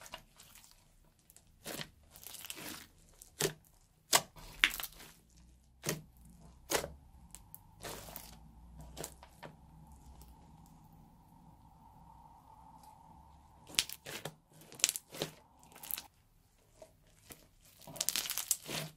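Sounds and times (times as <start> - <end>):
crunchy slime crackling and popping: 0.0 - 10.8, 13.6 - 16.1, 17.0 - 18.9.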